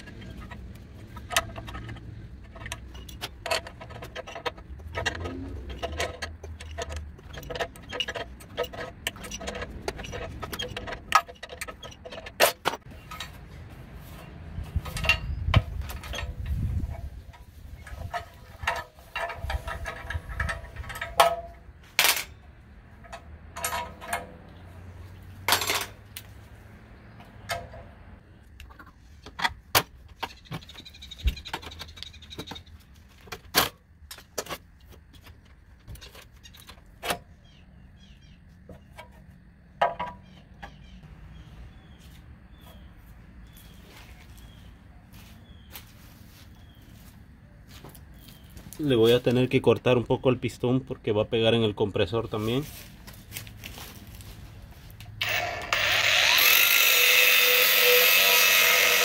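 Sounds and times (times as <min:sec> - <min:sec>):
hand tools clicking and clanking on metal: 0:00.0 - 0:26.4, 0:27.1 - 0:37.6, 0:38.5 - 0:41.0, 0:52.2 - 0:59.0.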